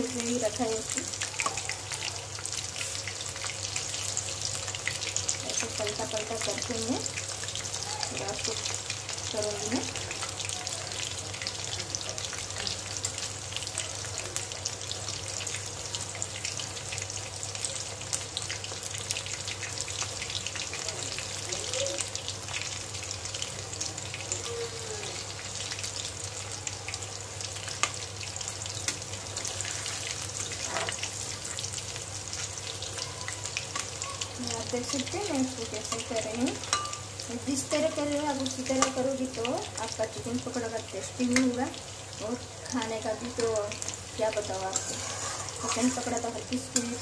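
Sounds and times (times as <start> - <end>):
food sizzling in hot oil: 0.0 - 47.0
metal spatula turning food: 28.6 - 39.2, 41.2 - 41.6, 42.7 - 47.0.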